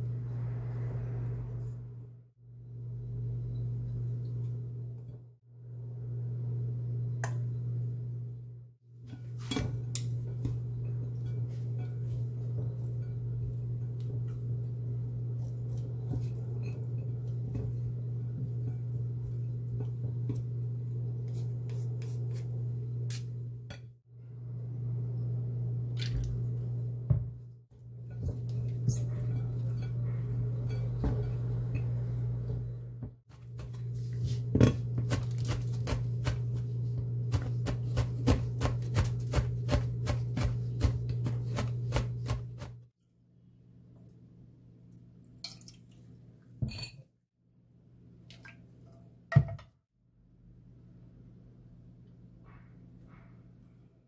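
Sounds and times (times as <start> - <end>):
low electrical hum: 0.0 - 47.0.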